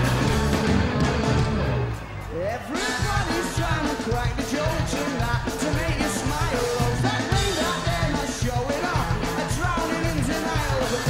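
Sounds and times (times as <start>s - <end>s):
rock band playing: 0.0s - 11.0s
male lead vocal singing: 2.5s - 11.0s.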